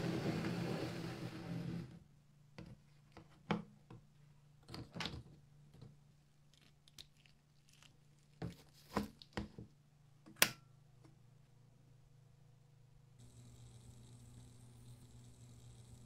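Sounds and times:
faint low hum: 9.6 - 16.0.

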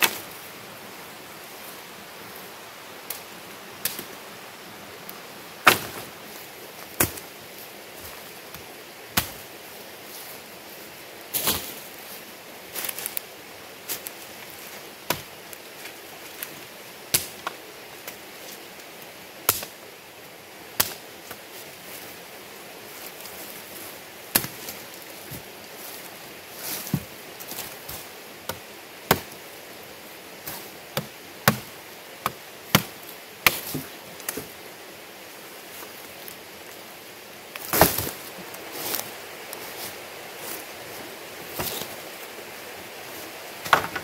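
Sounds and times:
machete chopping wood: 5.6 - 6.0, 28.5 - 29.3, 31.0 - 33.8.

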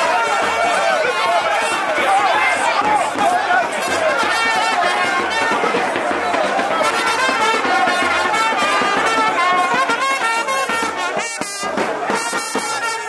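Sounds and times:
brass band playing: 0.0 - 13.0.

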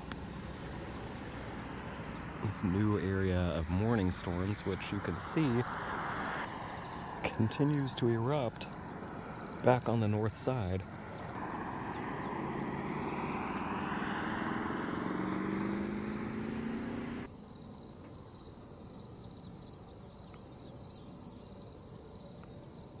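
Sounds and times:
vehicle engine and tyre hum: 0.0 - 18.2
crickets and insects chirring: 0.0 - 23.0.

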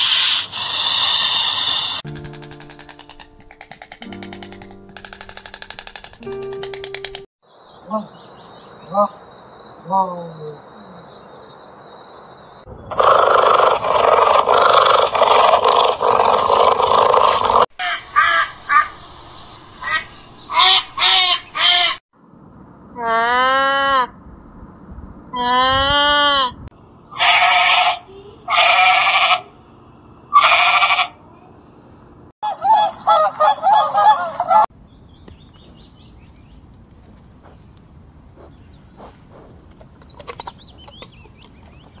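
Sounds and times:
harsh rasping animal call: 0.0 - 3.2, 12.9 - 18.9, 25.4 - 29.6, 30.3 - 31.2
low outdoor background: 0.0 - 42.0
small birds chirping: 1.8 - 17.6, 34.8 - 42.0.

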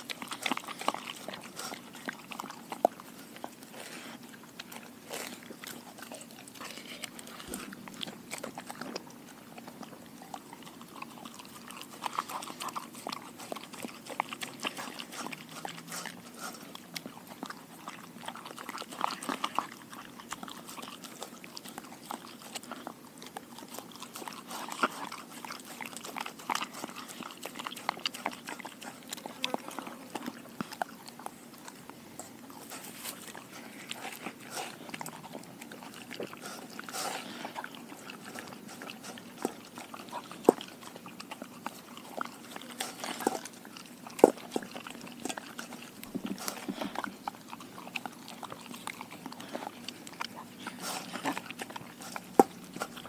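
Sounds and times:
dog chewing: 0.0 - 53.0
sharp clicks and crunches: 37.9 - 53.0.

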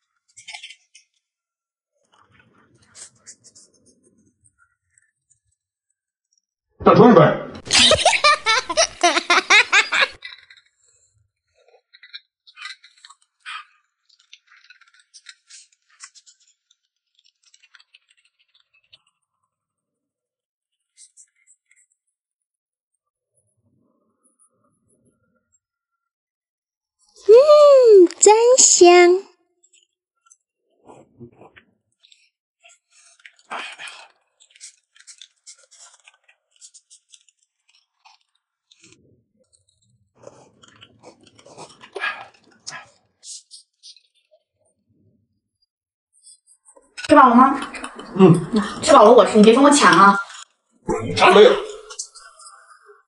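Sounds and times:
wet chewing: 11.9 - 19.1, 30.3 - 44.2
person slurping a drink: 40.2 - 42.7.

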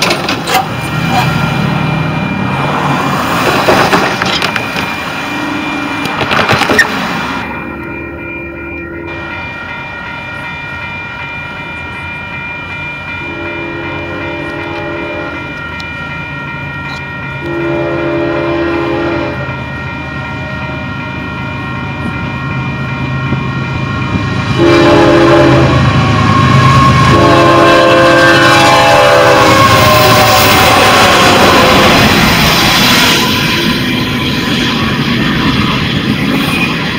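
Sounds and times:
crossing bell ringing: 0.0 - 36.9
locomotive rumble: 0.0 - 36.9
train horn blasts: 13.2 - 15.6, 17.4 - 19.6, 24.5 - 32.5.

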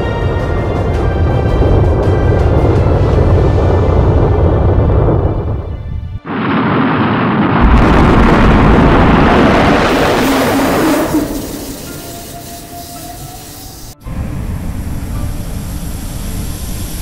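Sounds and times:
dramatic soundtrack music: 0.0 - 6.8
rocket engine roar: 0.0 - 17.0.

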